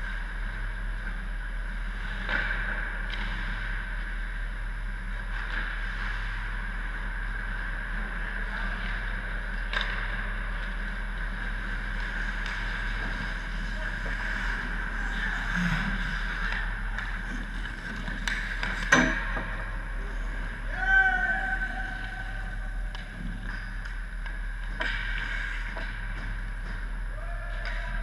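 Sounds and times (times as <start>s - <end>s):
mechanical hum and hiss: 0.0s - 28.0s
hockey sticks and pucks clacking: 9.5s - 19.7s, 22.8s - 26.9s, 27.5s - 28.0s.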